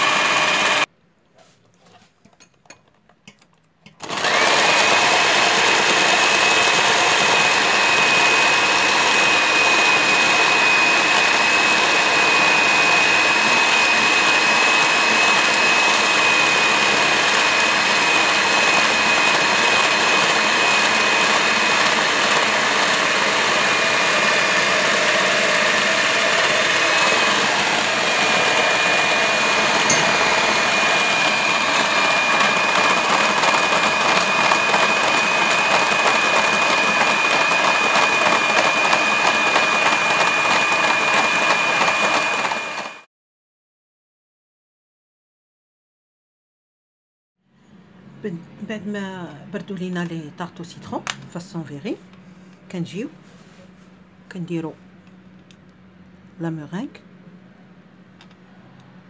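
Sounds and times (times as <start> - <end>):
electric hand mixer whining: 0.0 - 0.9, 4.0 - 43.1.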